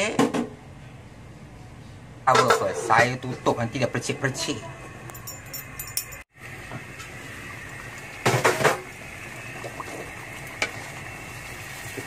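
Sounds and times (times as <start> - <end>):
paste sizzling in hot oil: 10.0 - 12.0.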